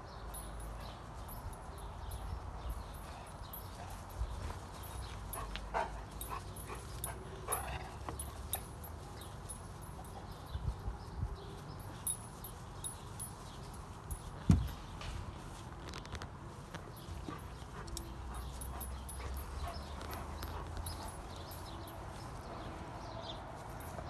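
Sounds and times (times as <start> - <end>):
low thump: 14.5 - 14.8.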